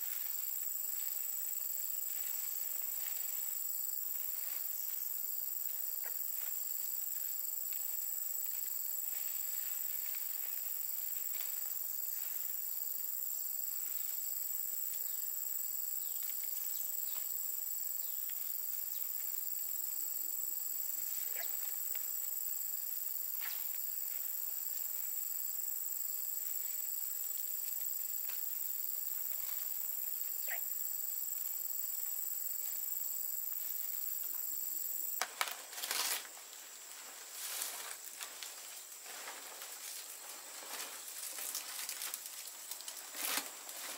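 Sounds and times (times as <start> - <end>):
palm-leaf thatch rustling: 0.0 - 12.8, 23.3 - 25.2, 26.3 - 30.0, 35.2 - 43.9
high-pitched insect chorus: 0.0 - 43.9.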